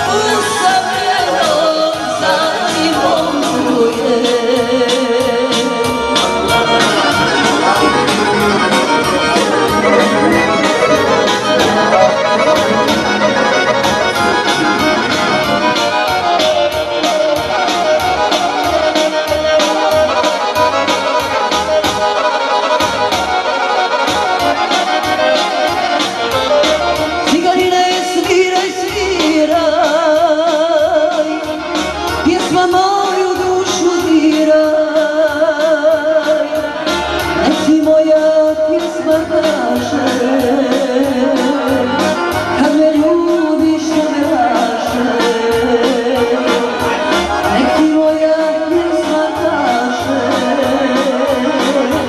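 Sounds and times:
synthesizer accordion lead: 0:00.0 - 0:52.0
fast programmed beat: 0:06.7 - 0:18.2.

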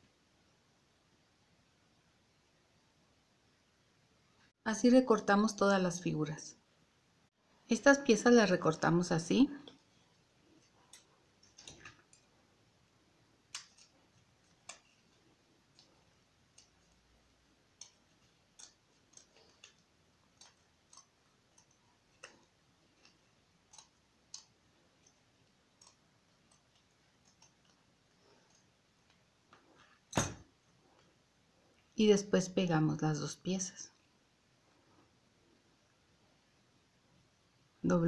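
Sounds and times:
scissors snipping paper: 0:13.5 - 0:15.9, 0:16.5 - 0:27.8.

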